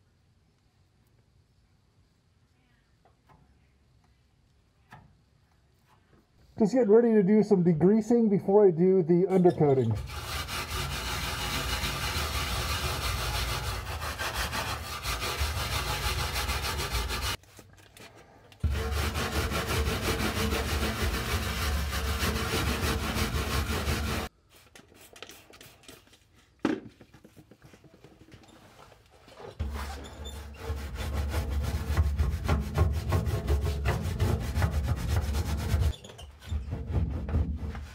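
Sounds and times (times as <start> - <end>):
stiff brush scrubbing: 9.7 - 17.4, 18.6 - 26.6, 27.2 - 36.0.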